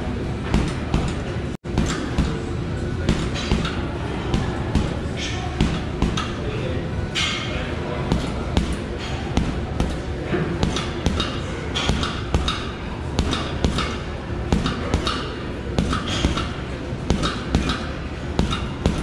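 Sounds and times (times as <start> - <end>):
gloves punching heavy bag: 5.6 - 6.4, 8.1 - 19.0.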